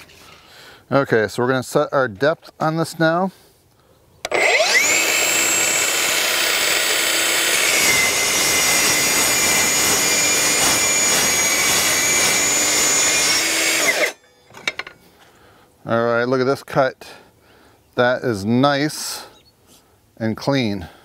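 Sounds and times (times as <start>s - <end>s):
circular saw cutting steel: 4.3s - 14.3s.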